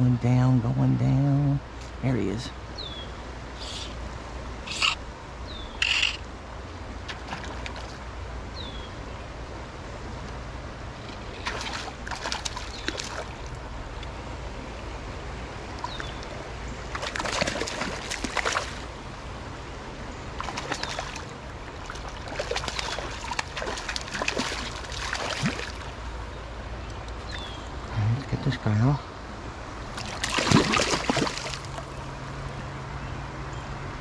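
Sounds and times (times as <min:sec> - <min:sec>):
stream flowing: 0:00.0 - 0:34.0
fish splashing water: 0:07.1 - 0:08.1, 0:11.3 - 0:13.6, 0:15.8 - 0:19.0, 0:20.4 - 0:26.0, 0:29.9 - 0:32.0.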